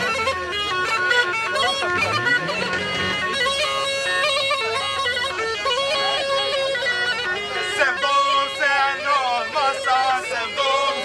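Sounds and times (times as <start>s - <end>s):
bagpipe playing dance tune: 0.0s - 8.6s.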